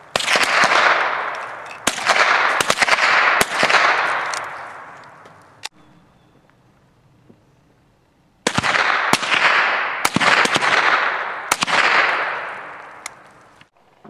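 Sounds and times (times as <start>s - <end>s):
rifle shots: 0.0s - 5.0s, 8.4s - 13.2s
gunshot echo: 0.1s - 5.0s, 8.4s - 13.0s.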